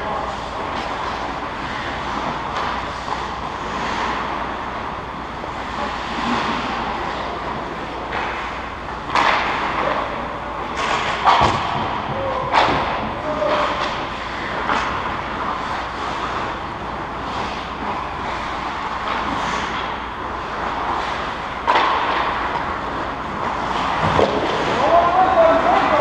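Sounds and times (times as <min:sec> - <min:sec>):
pucks or sticks knocking: 0:08.1 - 0:10.0, 0:10.7 - 0:16.1, 0:19.0 - 0:24.8.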